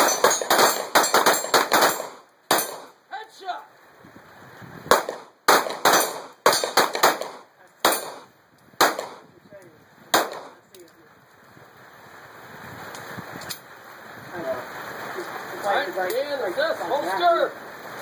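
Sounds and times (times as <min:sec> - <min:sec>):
pistol shots: 0:00.0 - 0:02.9, 0:04.9 - 0:09.2, 0:10.1 - 0:10.6.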